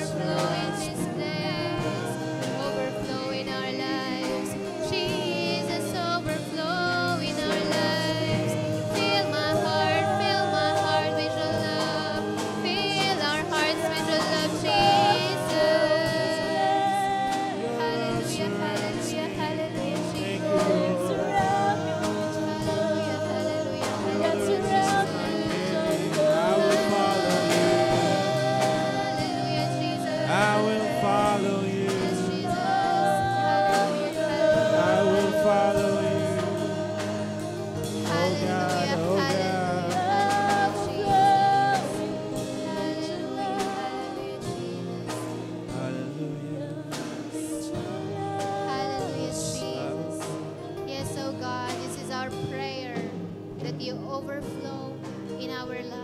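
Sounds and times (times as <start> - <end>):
group singing worship song: 0.0 - 56.0
keyboard accompaniment: 0.0 - 56.0.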